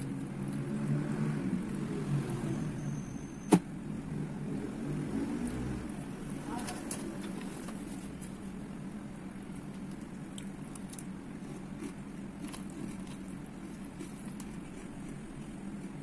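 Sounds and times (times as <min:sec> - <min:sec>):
steady low hum: 0:00.0 - 0:16.0
chewing crunches: 0:09.5 - 0:16.0.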